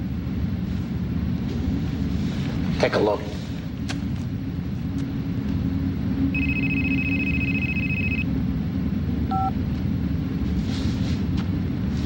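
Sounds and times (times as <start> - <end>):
electronic telephone ringing: 6.4 - 8.3, 9.3 - 9.5
keypad beep: 6.4 - 8.3, 9.3 - 9.6.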